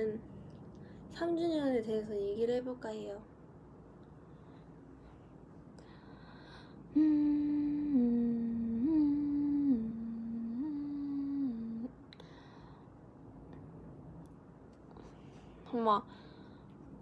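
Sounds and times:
woman humming: 6.9 - 12.0.

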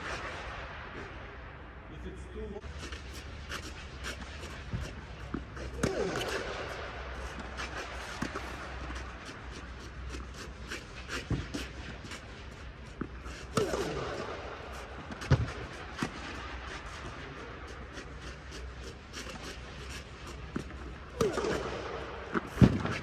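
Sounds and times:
steady low hum: 0.0 - 23.0
tennis balls hit by racket: 2.7 - 23.0
balls bouncing on court: 4.0 - 9.1, 12.9 - 17.1, 20.4 - 23.0.

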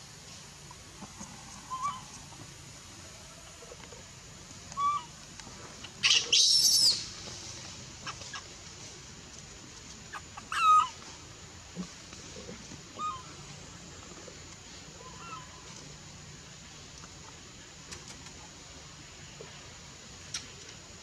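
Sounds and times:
baby monkey crying: 10.1 - 11.0.

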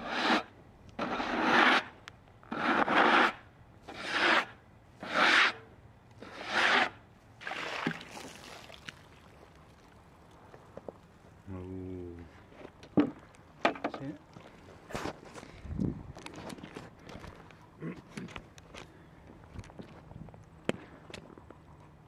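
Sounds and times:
hand brush sweeping sawdust: 0.0 - 1.9, 2.5 - 5.6, 6.2 - 7.0.

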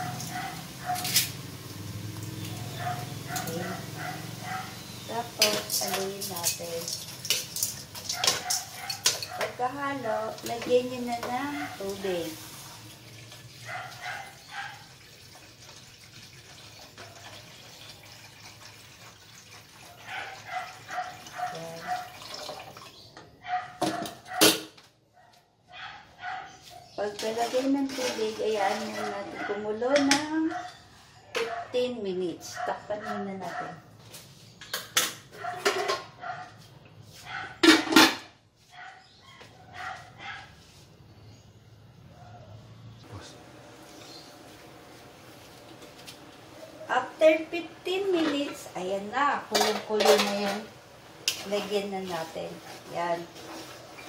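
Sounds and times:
dog barking: 0.0 - 1.2, 2.6 - 4.8, 8.1 - 9.6, 11.4 - 11.9, 13.6 - 14.9, 19.9 - 22.2, 23.4 - 27.0, 28.8 - 29.7, 30.3 - 33.9, 35.3 - 36.6, 37.2 - 37.8, 38.7 - 40.6
water pouring into a pot: 5.4 - 8.2, 11.8 - 13.7, 14.3 - 23.0.

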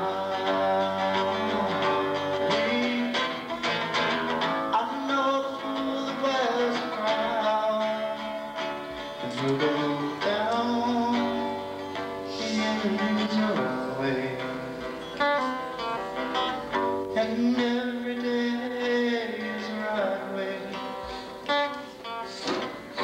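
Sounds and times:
man singing: 0.0 - 15.6, 17.0 - 23.0
strummed acoustic guitar: 0.0 - 23.0.

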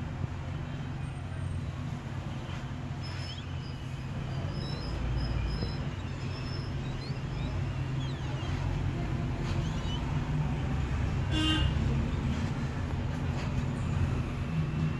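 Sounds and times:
road traffic rumble: 0.0 - 14.9.

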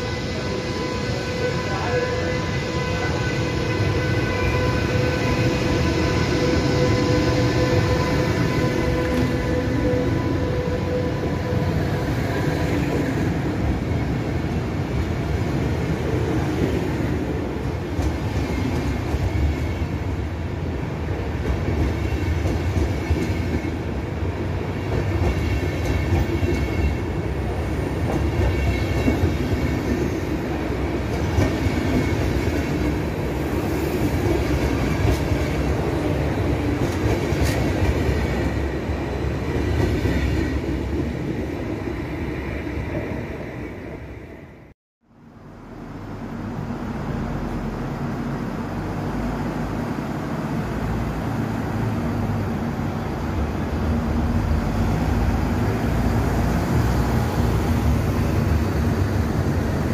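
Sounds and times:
train wheels rumbling on rails: 0.0 - 44.2.

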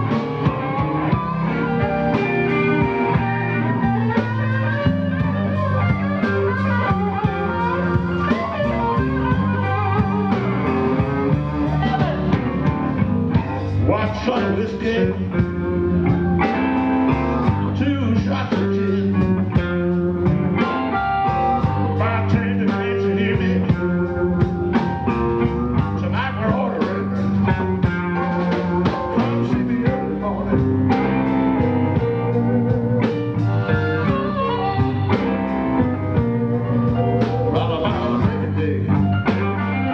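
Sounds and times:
blues guitar playing: 0.0 - 39.9.

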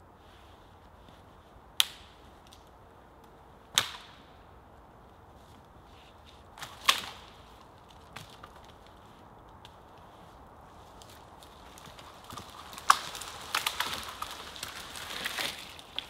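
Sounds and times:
wood cracking and snapping: 6.6 - 9.8, 10.9 - 16.0.

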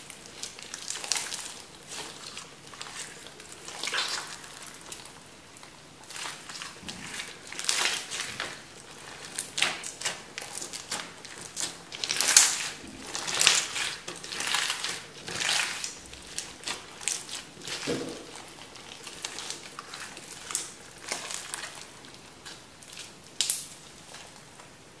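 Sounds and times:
beaded slime crackling and popping: 6.0 - 24.5.

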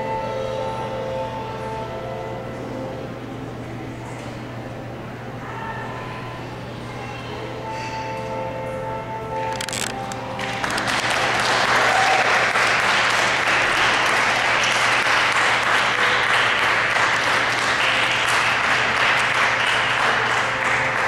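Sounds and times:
audience applauding: 9.6 - 21.0.

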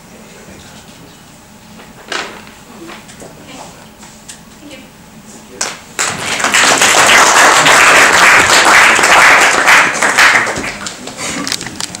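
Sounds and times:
audience applauding: 6.0 - 11.2.

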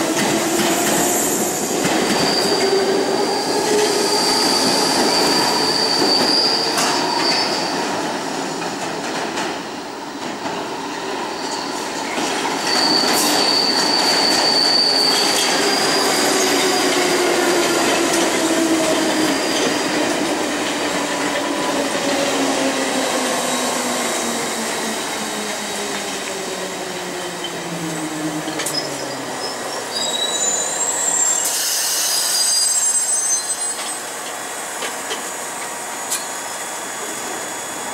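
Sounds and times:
train wheels squealing on rails: 0.0 - 37.9
burst of hiss: 31.4 - 32.5.

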